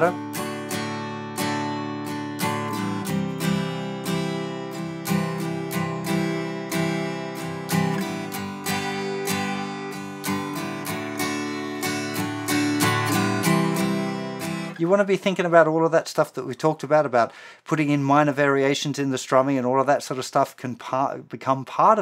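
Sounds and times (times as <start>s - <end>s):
acoustic guitar strumming chords: 0.0s - 15.1s.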